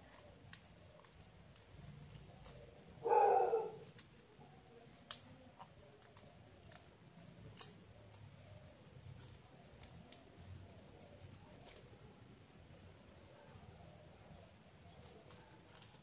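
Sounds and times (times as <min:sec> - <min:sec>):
paper crease snapping: 0:00.0 - 0:12.1, 0:14.8 - 0:16.0
paper crinkling: 0:00.0 - 0:12.2, 0:14.8 - 0:16.0
animal call: 0:03.0 - 0:03.9.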